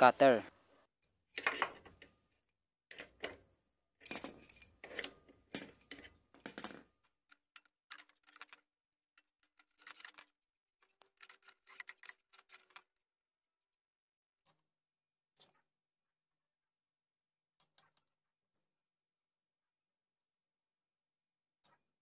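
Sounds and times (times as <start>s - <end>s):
metal tools clinking: 1.3s - 3.4s, 4.0s - 7.0s.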